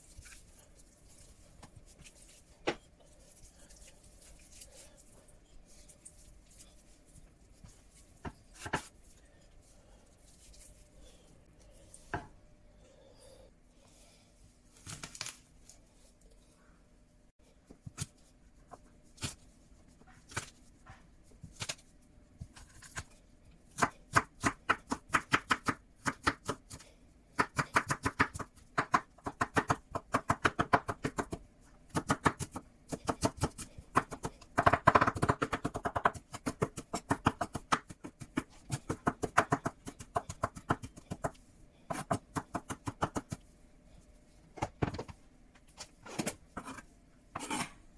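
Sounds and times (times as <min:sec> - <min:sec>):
knife chopping on cutting board: 0:08.2 - 0:08.9.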